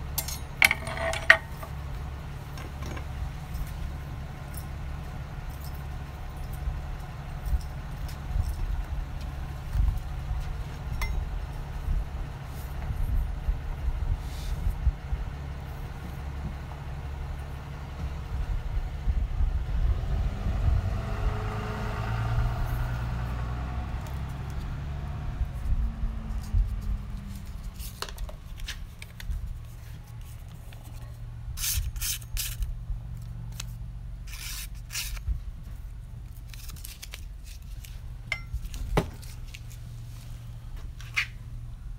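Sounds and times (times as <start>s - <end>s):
low hum: 0.0s - 31.6s, 32.3s - 41.9s
knives clicking and scraping: 31.6s - 32.7s, 33.5s - 35.3s, 36.3s - 39.7s.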